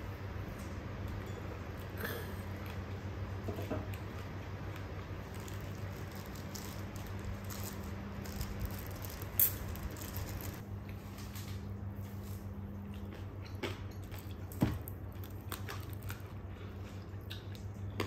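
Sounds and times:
steady low hum: 0.0s - 18.0s
plastic glove crinkling: 5.1s - 11.4s.

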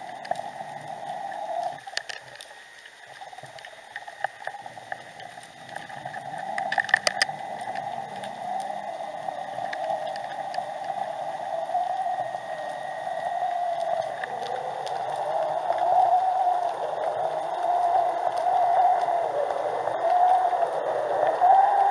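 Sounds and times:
rushing water underwater: 0.0s - 21.9s
sharp clicks and knocks: 6.6s - 7.9s.

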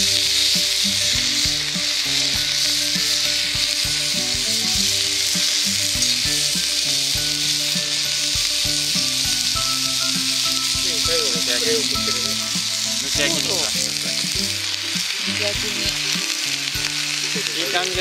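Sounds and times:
chicken sizzling in a frying pan: 0.0s - 18.0s.

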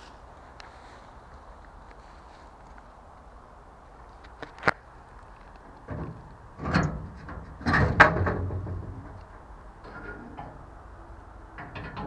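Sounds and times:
steel door rattling and scraping: 5.8s - 12.0s.

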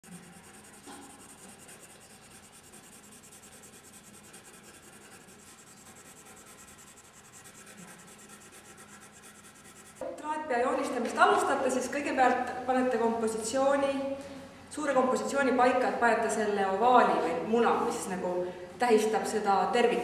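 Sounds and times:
pencil scratching on paper: 0.0s - 10.0s.

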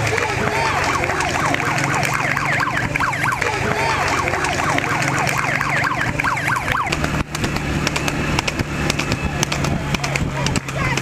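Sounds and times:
electronic siren yelping: 0.4s - 7.0s.

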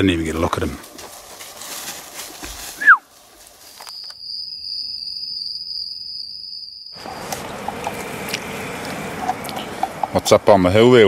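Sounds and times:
outdoor background noise: 0.0s - 11.0s
high-pitched insect trill: 2.6s - 8.0s.

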